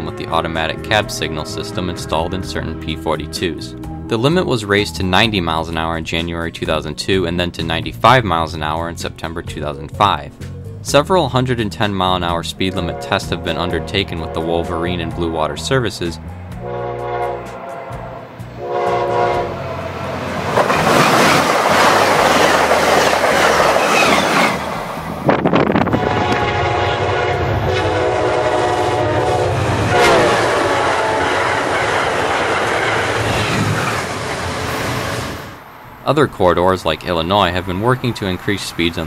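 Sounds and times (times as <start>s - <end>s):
train horn blast: 0.0s - 3.3s, 12.6s - 15.6s, 16.3s - 20.3s, 25.8s - 31.9s
train rushing past: 16.0s - 39.0s.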